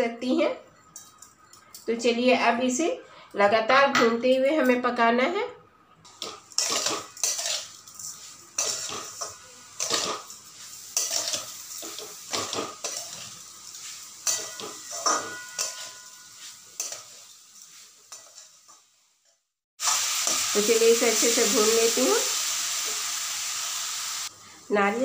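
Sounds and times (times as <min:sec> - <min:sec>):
spatula scraping metal pan: 0:06.5 - 0:10.4
metal pan ringing: 0:14.2 - 0:17.0.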